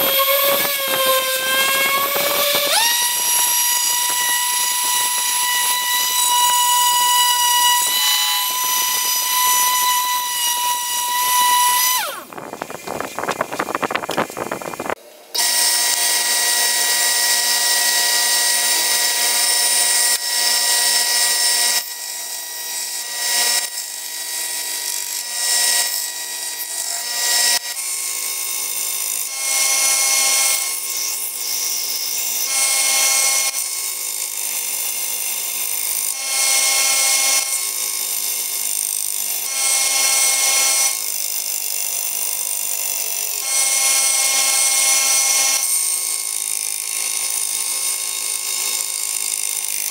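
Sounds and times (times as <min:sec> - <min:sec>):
steel blade grinding on belt: 0:00.0 - 0:15.5
belt sander motor whine: 0:00.0 - 0:22.0.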